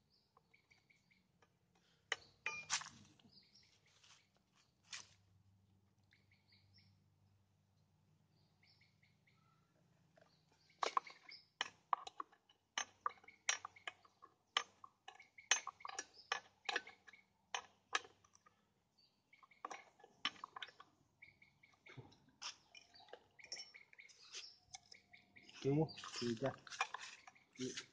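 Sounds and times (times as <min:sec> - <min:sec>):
faint bird chirps: 0:06.0 - 0:07.1, 0:07.7 - 0:11.6, 0:18.4 - 0:27.9.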